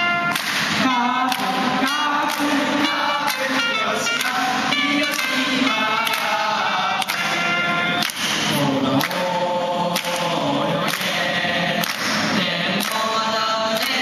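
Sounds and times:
hand claps: 0:00.2 - 0:14.0
young men singing together: 0:00.5 - 0:14.0.

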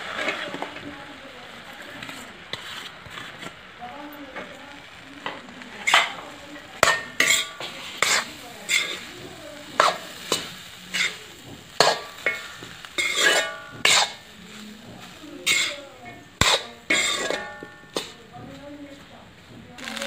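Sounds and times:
steel spoon scraping iron pan: 0:01.9 - 0:03.6, 0:05.8 - 0:06.2, 0:06.8 - 0:18.2.

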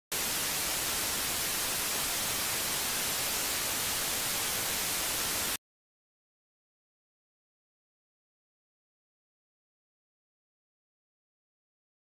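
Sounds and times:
tv static hiss: 0:00.1 - 0:05.6.

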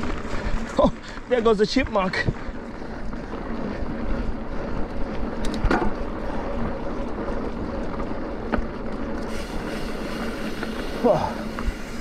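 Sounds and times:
bike tyre and frame rumble: 0:00.0 - 0:12.0
wind rush on microphone: 0:02.0 - 0:07.8, 0:09.3 - 0:12.0
bike knocks and rattles: 0:05.0 - 0:09.2.

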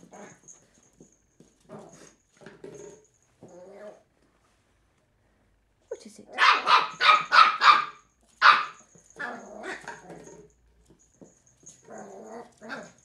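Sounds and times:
puppy barking: 0:06.4 - 0:10.0.

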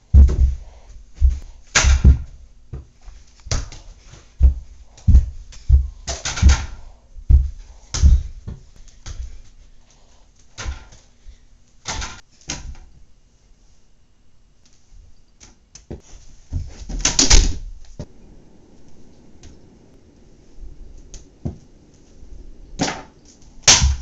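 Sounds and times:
ball thumping and knocking: 0:00.1 - 0:09.4.

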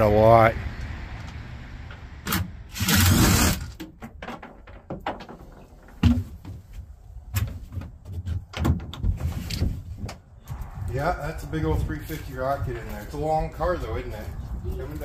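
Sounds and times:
knocks and thumps on plywood floor: 0:03.8 - 0:06.6, 0:07.4 - 0:09.8.

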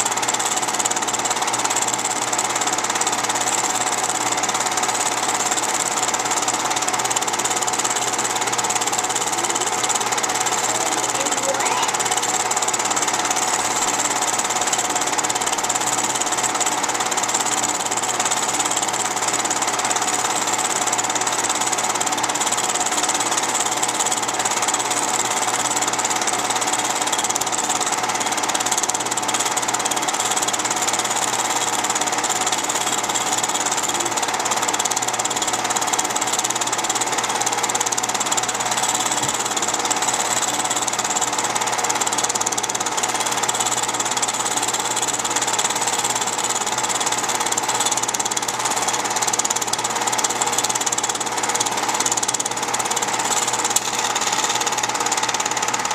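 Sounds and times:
film projector running: 0:00.0 - 0:55.9.

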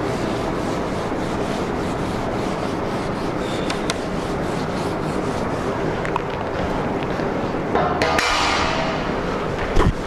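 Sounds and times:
eraser scrubbing whiteboard: 0:00.0 - 0:06.2.

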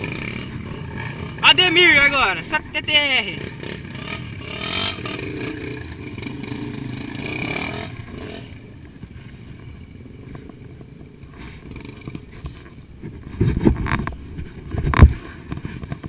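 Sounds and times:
motorcycle engine passing: 0:00.0 - 0:12.6.

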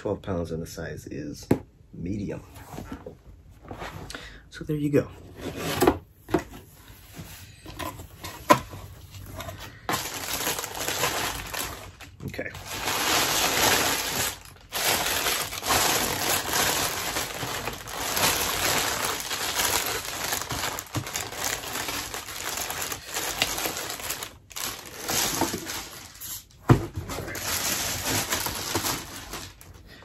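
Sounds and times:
plastic bag crinkling: 0:09.1 - 0:26.5, 0:27.1 - 0:29.9.

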